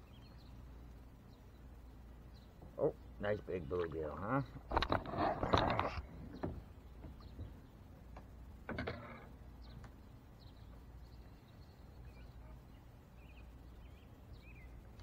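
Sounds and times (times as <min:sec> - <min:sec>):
low outdoor rumble: 0:00.0 - 0:15.0
faint bird chirps: 0:09.1 - 0:15.0.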